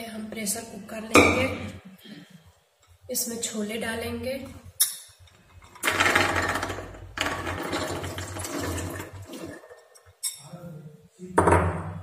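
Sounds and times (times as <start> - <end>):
chickpeas rattling into metal pot: 5.7 - 9.8.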